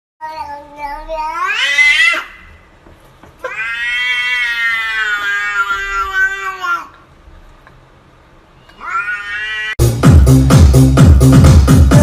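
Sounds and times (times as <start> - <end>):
cat yowling: 1.2 - 2.4, 3.4 - 6.9, 8.6 - 9.8.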